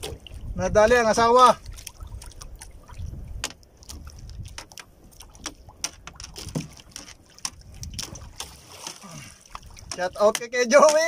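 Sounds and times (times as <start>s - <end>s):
low rumble of wind and water: 0.0s - 11.0s
sharp clicks and knocks: 3.4s - 9.0s, 9.8s - 11.0s.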